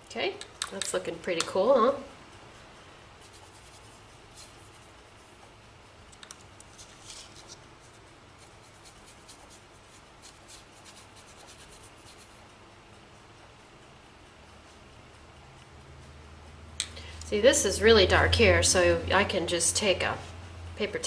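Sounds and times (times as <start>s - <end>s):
scratchy paintbrush strokes: 3.2s - 5.4s, 6.6s - 12.4s.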